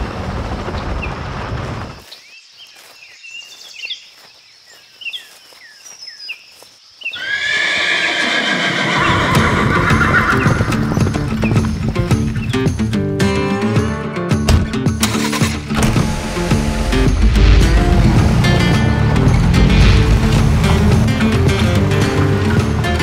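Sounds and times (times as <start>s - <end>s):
birds chirping: 0.4s - 13.1s
horse whinnying: 7.2s - 11.0s
car noise: 14.5s - 23.0s.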